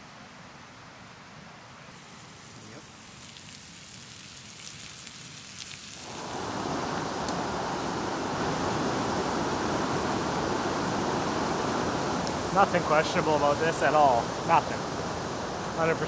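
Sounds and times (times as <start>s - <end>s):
campfire crackling: 2.0s - 16.0s
creek rushing: 6.0s - 16.0s.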